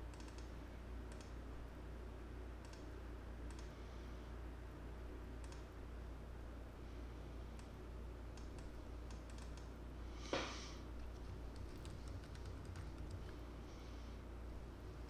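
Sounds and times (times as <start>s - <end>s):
low electrical hum: 0.0s - 15.0s
computer mouse clicks: 0.1s - 0.5s, 1.1s - 1.4s, 2.6s - 3.8s, 5.4s - 5.7s, 7.6s - 9.7s, 11.0s - 13.4s
keyboard typing: 8.4s - 9.7s, 11.0s - 13.4s.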